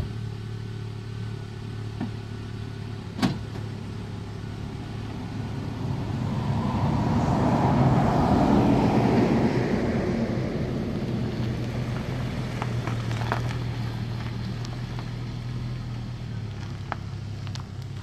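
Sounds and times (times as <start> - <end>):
truck engine idling: 0.0 - 18.0
truck passing by: 3.9 - 18.0.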